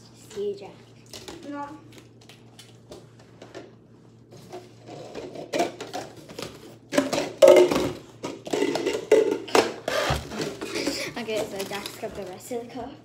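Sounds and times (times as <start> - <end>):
plastic cups clattering together: 4.5 - 12.5.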